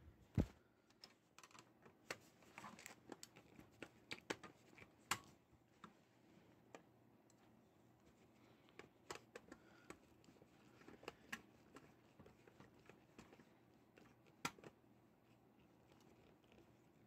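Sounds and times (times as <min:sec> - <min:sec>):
faint clicks and taps: 0:00.3 - 0:17.0.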